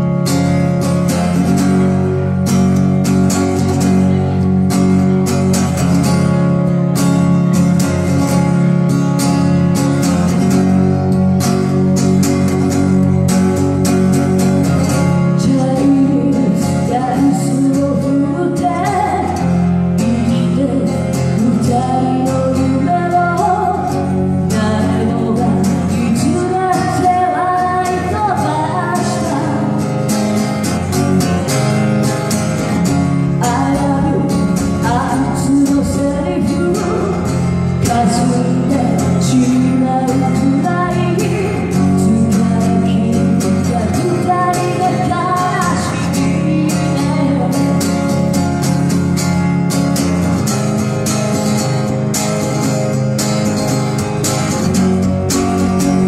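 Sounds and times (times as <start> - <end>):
acoustic guitar strumming: 0.0 - 56.0
woman singing into microphone: 15.4 - 29.9, 33.4 - 48.2.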